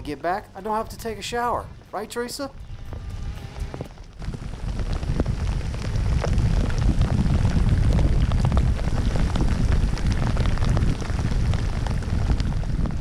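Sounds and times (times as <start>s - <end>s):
strong low rumble: 0.0s - 13.0s
raindrops ticking: 2.6s - 13.0s.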